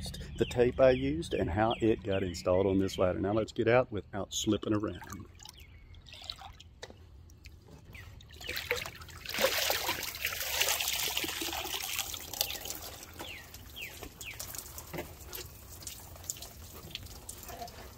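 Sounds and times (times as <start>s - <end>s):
water splashing and dripping: 4.9s - 17.9s.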